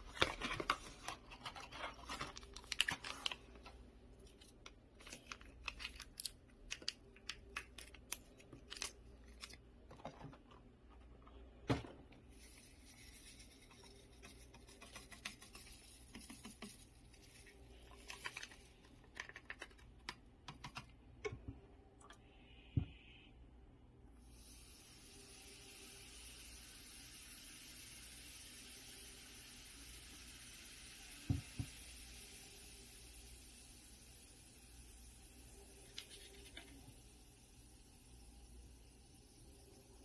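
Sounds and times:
paper box rustling: 0.0 - 3.7
sachet tearing open: 0.0 - 3.7, 4.3 - 9.6.

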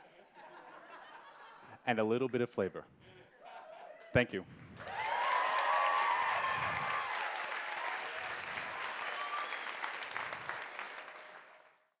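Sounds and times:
people cheering: 4.8 - 11.7
audience applauding: 4.8 - 12.0.

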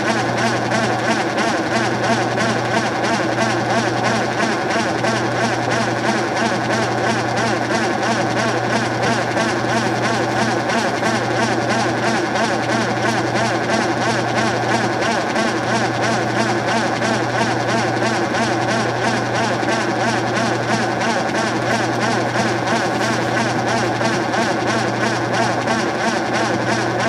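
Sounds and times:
washing machine spinning: 0.0 - 27.0.

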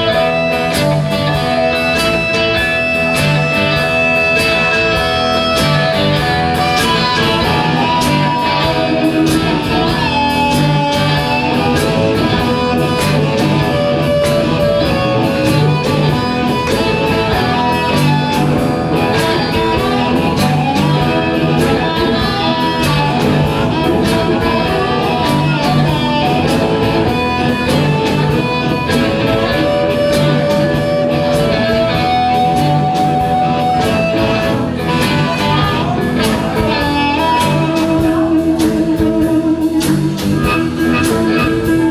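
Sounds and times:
blues band playing: 0.0 - 41.9
drum kit steady beat: 0.0 - 41.9.

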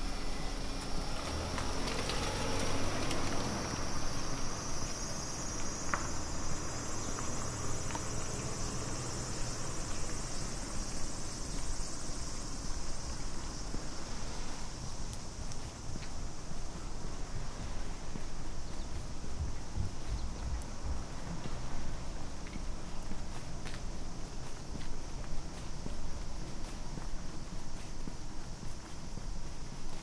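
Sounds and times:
insects trilling: 0.0 - 30.0
rain hiss: 0.0 - 30.0.

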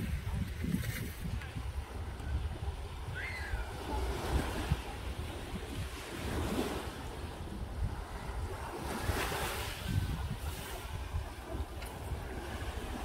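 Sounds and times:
wind rumbling on microphone: 0.0 - 13.0
small waves on pebble beach: 3.6 - 13.0.

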